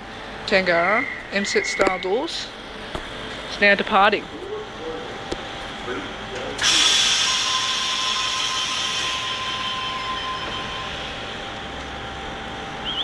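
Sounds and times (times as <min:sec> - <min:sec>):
steady warning tone: 0:00.0 - 0:02.8, 0:03.5 - 0:13.0
train doors hissing: 0:06.4 - 0:12.0.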